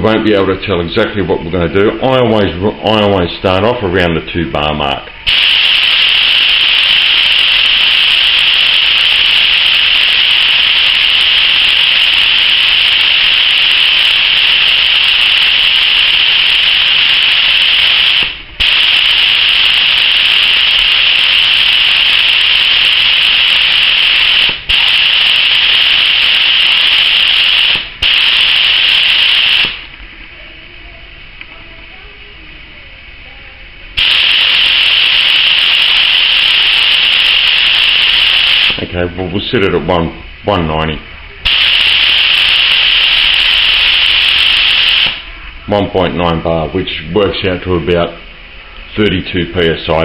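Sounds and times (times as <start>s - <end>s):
compressed air hissing from spray gun: 5.2s - 29.9s, 34.0s - 38.8s.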